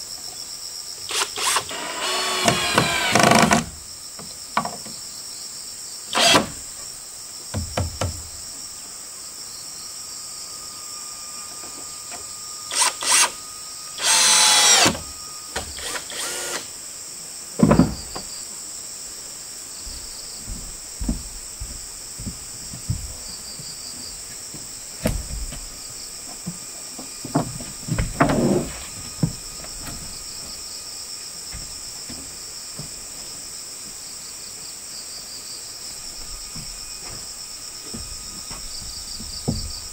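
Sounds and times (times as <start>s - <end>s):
high-pitched insect chorus: 0.0s - 39.9s
tool noise bursts: 1.1s - 3.7s, 6.1s - 6.6s, 12.7s - 13.4s, 14.0s - 16.7s.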